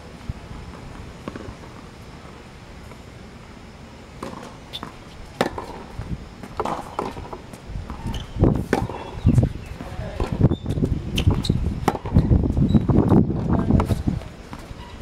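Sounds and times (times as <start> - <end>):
steady low rumble: 0.0 - 14.6
tennis ball bouncing: 0.7 - 1.9, 4.2 - 12.3
rackets striking tennis ball: 4.2 - 12.3.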